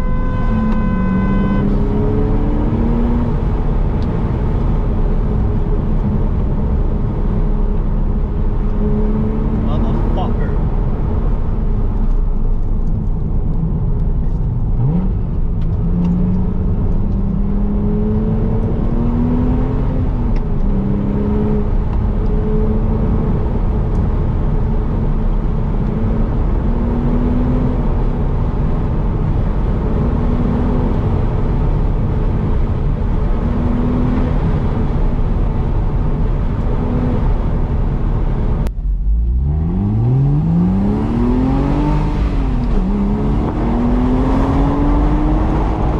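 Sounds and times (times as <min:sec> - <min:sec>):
car engine revving: 0:00.0 - 0:45.9.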